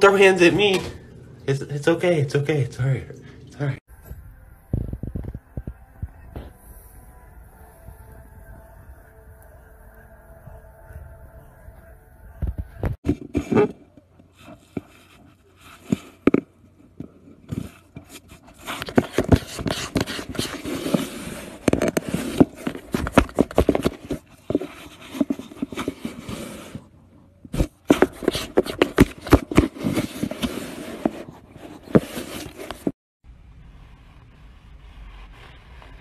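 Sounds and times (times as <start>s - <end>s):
cat scratching cardboard box: 18.2s - 26.8s, 27.6s - 32.9s.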